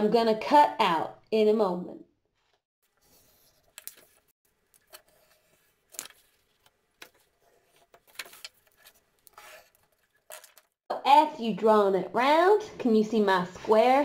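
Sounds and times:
pencil scratching on cardboard: 0:09.3 - 0:09.8.

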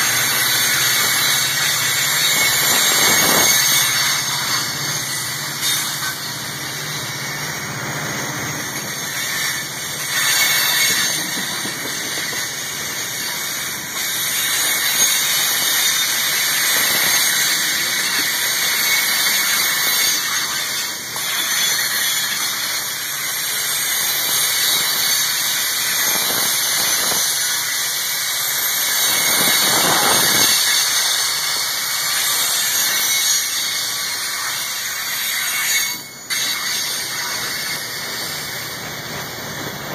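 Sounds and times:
freight train rolling past: 0:00.0 - 0:20.7, 0:36.3 - 0:39.9
wheels squealing on rails: 0:00.0 - 0:39.9.

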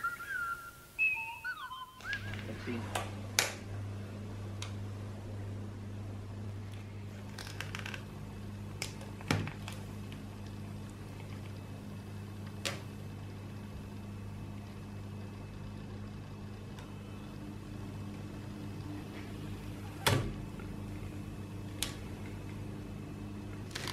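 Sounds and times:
steady low hum: 0:00.0 - 0:23.9
film peeling crackles and snaps: 0:07.2 - 0:08.0, 0:23.7 - 0:23.9.

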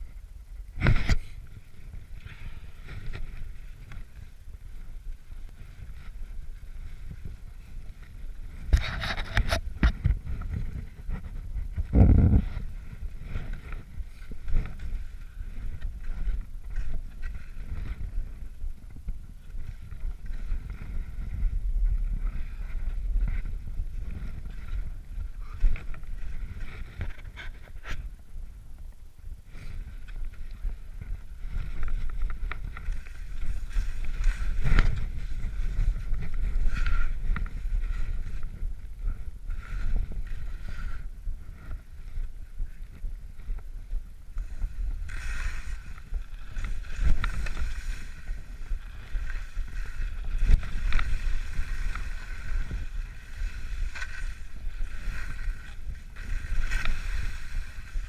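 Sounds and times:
wind rumbling on microphone: 0:00.0 - 0:58.0
boots and poles crunching snow: 0:29.6 - 0:42.1, 0:44.4 - 0:58.0.

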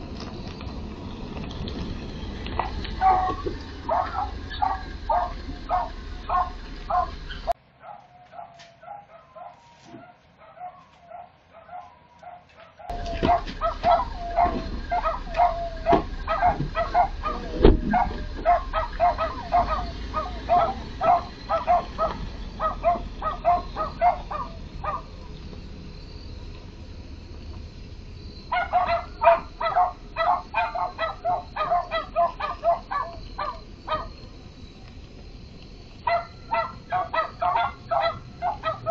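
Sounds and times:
truck engine running low: 0:00.0 - 0:07.6, 0:12.9 - 0:38.9
dog barking: 0:02.6 - 0:07.2, 0:07.8 - 0:25.1, 0:28.5 - 0:34.2, 0:36.0 - 0:38.9.

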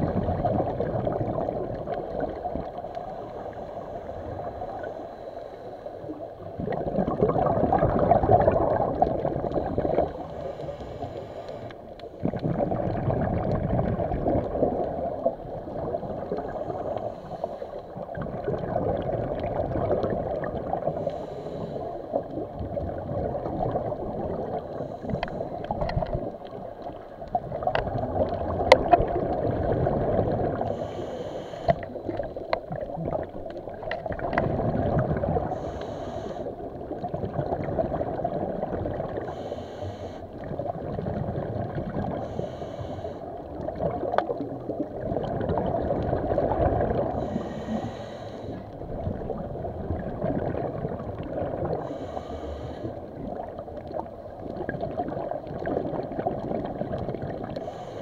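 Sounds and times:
underwater bubbles gurgling: 0:00.0 - 0:58.0
hissing breaths: 0:02.8 - 0:06.3, 0:09.9 - 0:12.2, 0:16.4 - 0:18.0, 0:20.9 - 0:22.2, 0:30.6 - 0:32.2, 0:35.4 - 0:36.6, 0:39.2 - 0:40.4, 0:42.1 - 0:43.4, 0:47.2 - 0:49.1, 0:51.8 - 0:53.2, 0:57.6 - 0:58.0.

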